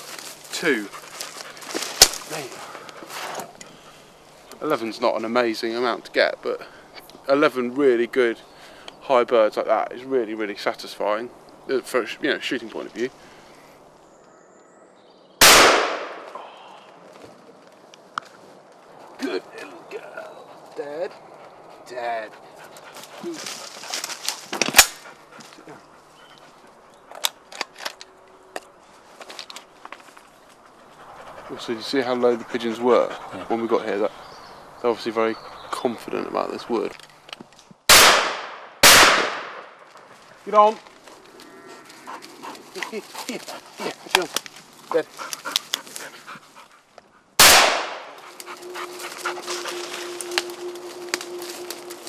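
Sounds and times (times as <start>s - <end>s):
snaps and rustles in undergrowth: 0.0s - 4.9s, 22.7s - 25.7s, 26.3s - 30.7s, 39.8s - 46.3s, 46.9s - 52.0s
loud shotgun shot: 15.4s - 16.3s, 37.9s - 39.6s, 47.4s - 48.1s
faint steady whine: 48.1s - 52.0s.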